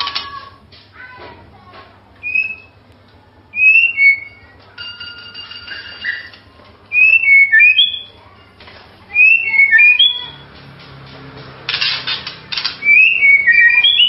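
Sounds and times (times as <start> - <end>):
bird singing whistled phrases: 2.2 - 2.8, 3.6 - 4.5, 6.9 - 8.2, 9.1 - 10.4, 12.8 - 14.0
held bird whistle: 2.2 - 2.8, 3.6 - 4.5, 6.9 - 8.2, 9.1 - 10.4, 12.8 - 14.0.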